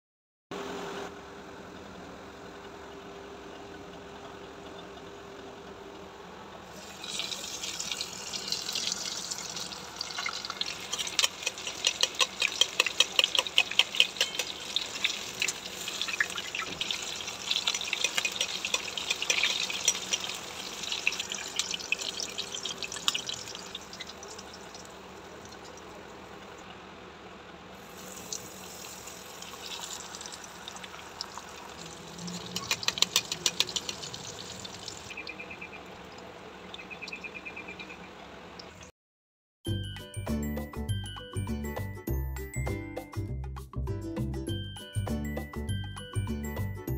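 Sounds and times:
faint steady hum: 0.6 - 38.9
chicken sizzling in hot oil: 6.6 - 27.0, 27.7 - 35.2.

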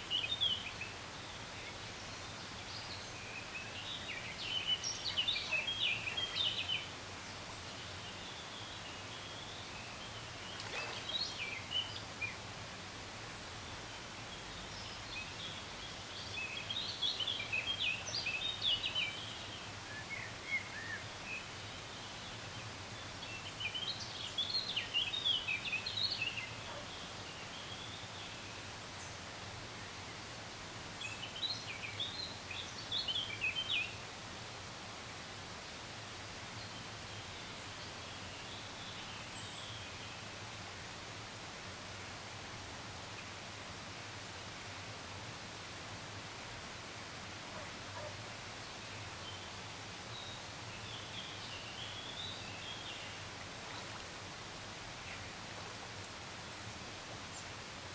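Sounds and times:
songbird chirping: 0.0 - 12.5, 13.3 - 34.1, 47.5 - 57.7
faint outdoor background noise: 0.0 - 57.9.

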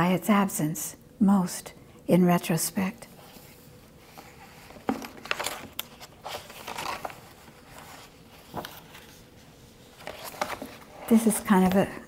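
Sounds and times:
book pages turning: 3.2 - 12.0.

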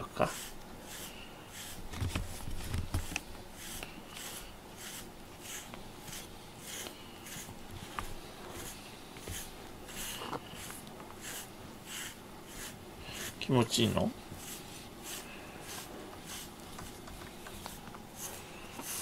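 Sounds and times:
brush raking through cat fur: 0.0 - 19.0.

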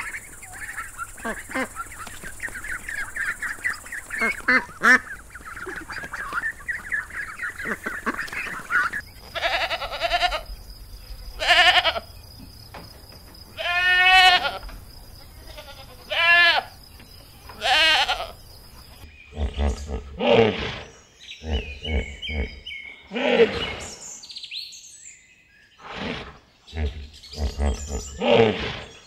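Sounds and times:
ducks quacking: 0.0 - 10.5
goats bleating: 9.3 - 10.5, 11.4 - 12.1, 13.6 - 16.7, 17.6 - 18.4
low animal calls: 19.3 - 24.0.

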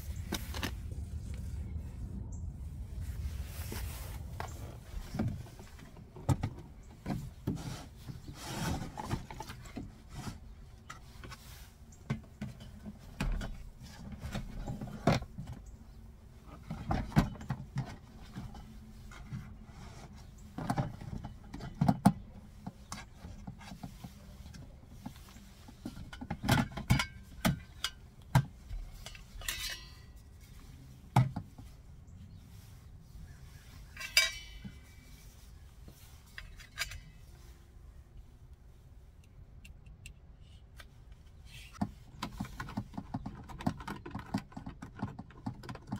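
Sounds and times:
plastic and metal containers knocking: 41.8 - 45.9.

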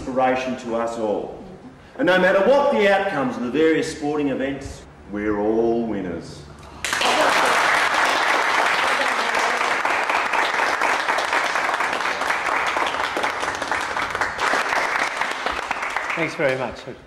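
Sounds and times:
crowd applauding: 6.8 - 16.7.

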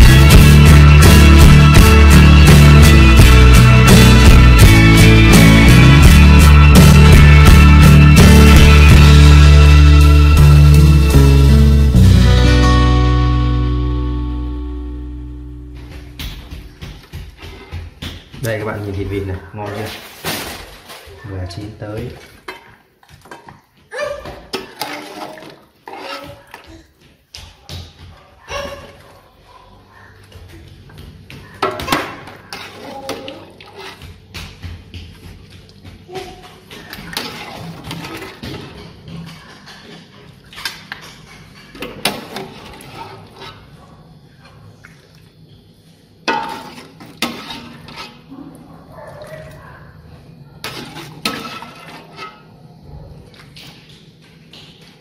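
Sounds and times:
metal ladle scraping a wok: 24.5 - 26.5, 32.3 - 34.0, 42.1 - 43.8, 46.3 - 48.3, 50.6 - 52.5
ladle clanking on pot rims: 46.2 - 48.2.

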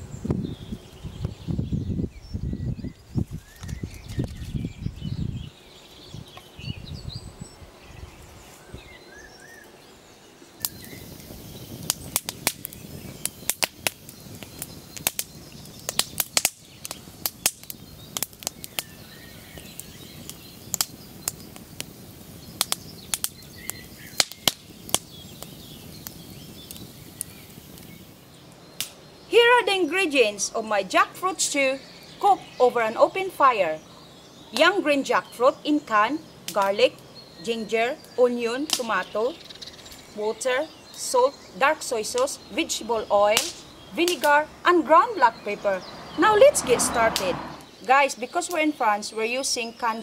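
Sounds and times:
soft bird chirps: 0.0 - 50.0
wood fire crackling: 10.6 - 48.7.

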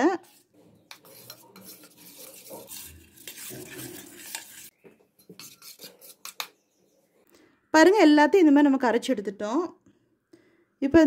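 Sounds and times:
spoon stirring thick batter: 0.0 - 7.3.

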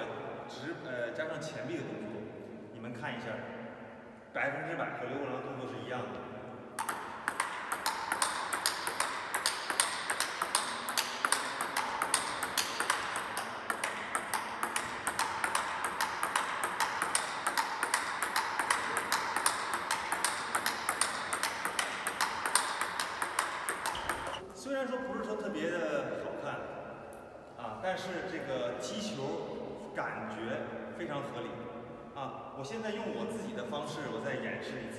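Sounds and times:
table tennis ball clicks: 6.8 - 24.4.

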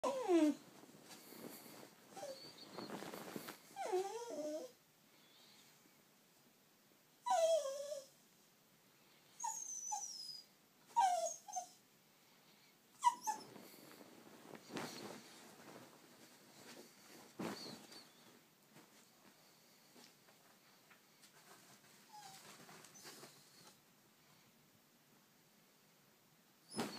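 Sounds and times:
small dog whining and whimpering: 0.0 - 0.6, 2.1 - 4.8, 7.2 - 8.2, 9.4 - 11.8, 13.0 - 13.6, 22.1 - 23.6.

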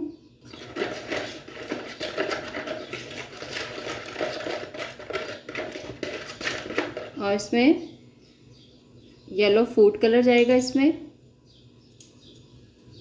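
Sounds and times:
metal spoon stirring in plastic bowl: 0.4 - 7.4.

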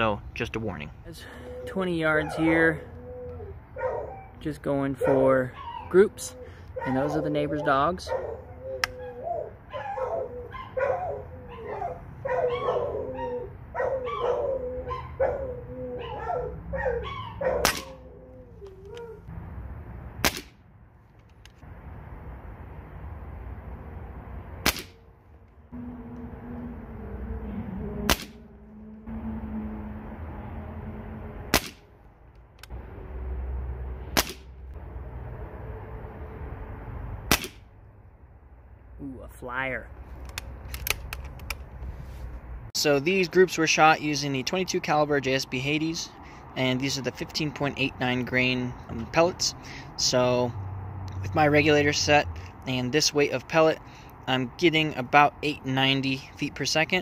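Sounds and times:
dogs barking: 1.5 - 19.3
air rifle shot: 17.6 - 18.0, 20.2 - 20.6, 24.6 - 25.0, 28.1 - 28.4, 31.5 - 31.8, 34.2 - 34.5, 37.3 - 37.7.

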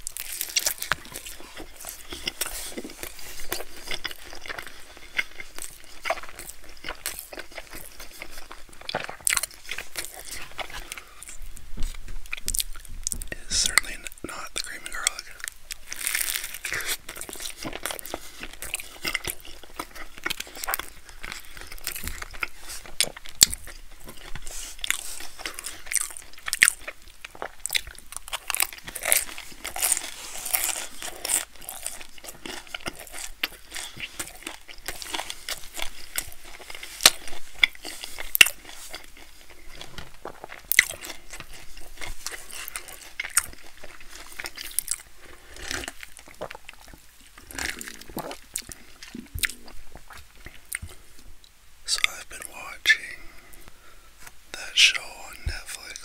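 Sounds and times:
chewing crunchy bread: 0.0 - 56.0
wet mouth sounds: 45.6 - 51.0.

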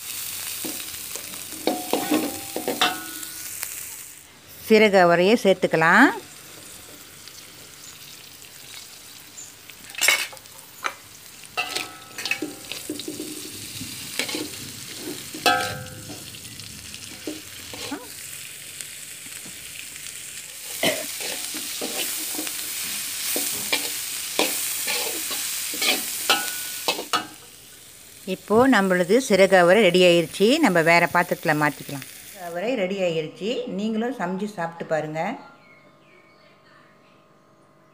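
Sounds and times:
beans sizzling in hot oil: 0.0 - 32.9
metal utensil scraping wok: 0.4 - 3.8, 9.8 - 18.2, 20.6 - 27.5.

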